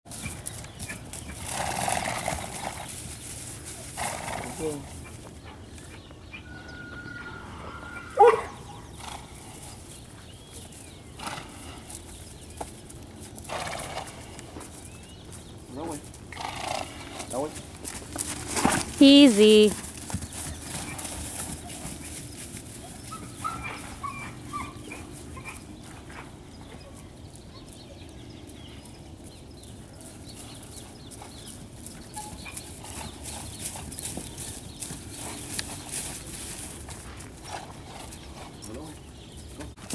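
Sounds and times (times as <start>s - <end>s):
hoofbeats on soft ground: 0.1s - 39.9s
loud animal call: 6.4s - 9.2s.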